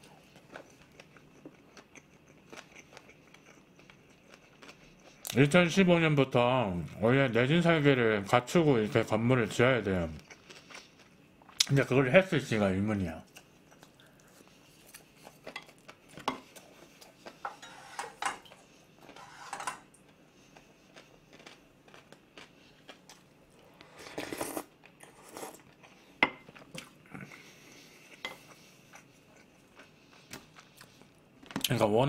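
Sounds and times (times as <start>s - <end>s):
person chewing: 0.2s - 5.4s, 10.2s - 11.7s, 13.3s - 17.4s, 20.0s - 31.6s
clinks and scrapes: 17.4s - 18.4s, 19.1s - 19.9s.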